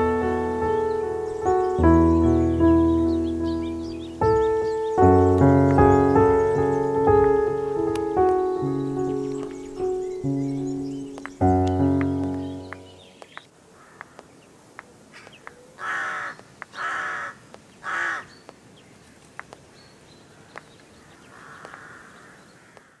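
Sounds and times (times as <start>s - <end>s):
music chord: 0.0s - 13.1s
crow cawing: 13.8s - 14.3s, 15.8s - 18.3s, 21.2s - 23.0s
faint clicks: 21.5s - 21.9s, 22.7s - 22.9s.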